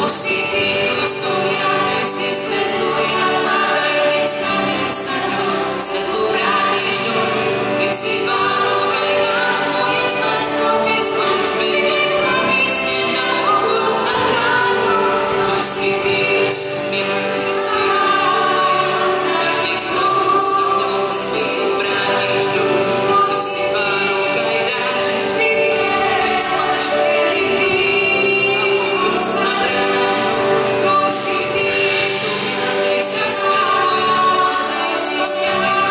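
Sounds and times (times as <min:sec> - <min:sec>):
choir singing a worship song: 0:00.0 - 0:35.9.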